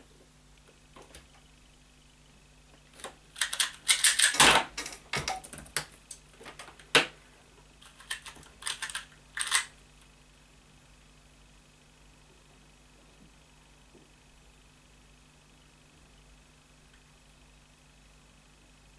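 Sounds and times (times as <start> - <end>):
speed cube clicking: 3.4 - 4.4, 7.8 - 9.7.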